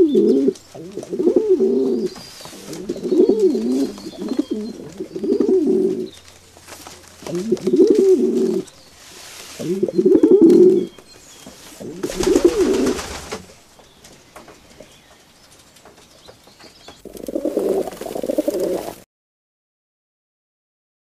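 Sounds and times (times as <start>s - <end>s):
pigeon cooing: 0.0s - 6.2s, 7.2s - 8.8s, 9.6s - 11.0s, 11.7s - 13.4s, 17.0s - 19.0s.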